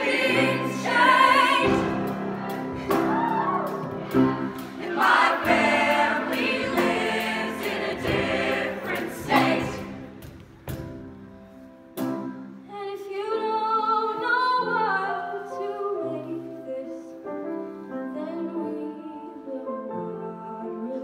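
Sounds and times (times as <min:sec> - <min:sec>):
choir singing sustained chords: 0:00.0 - 0:03.1, 0:03.8 - 0:10.2.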